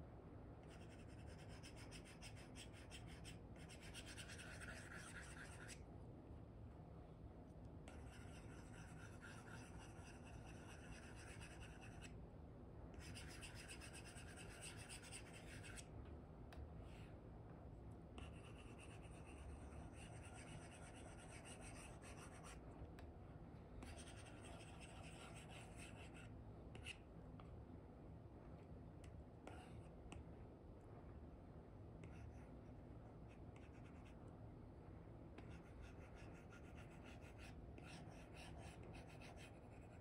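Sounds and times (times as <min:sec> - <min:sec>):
stylus scratching on screen film: 0:00.7 - 0:05.8, 0:18.2 - 0:22.6.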